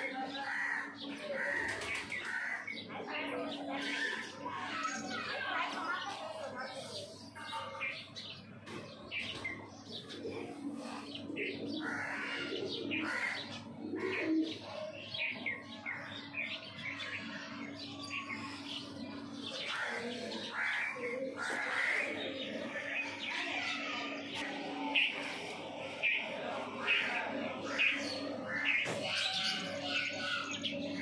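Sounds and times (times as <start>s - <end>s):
birds chirping and calling: 0.0s - 31.0s.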